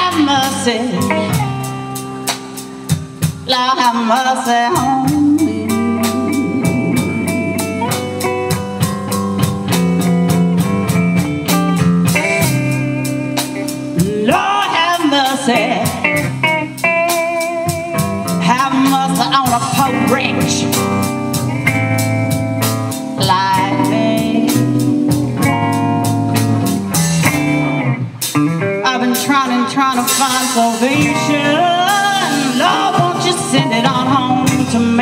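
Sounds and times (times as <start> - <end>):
woman singing: 0.0 - 1.6, 3.4 - 8.0, 14.0 - 16.3, 18.3 - 20.8, 23.2 - 25.7, 28.8 - 35.0
bass guitar: 0.0 - 35.0
drum kit beat: 0.0 - 35.0
electric guitar: 0.0 - 35.0.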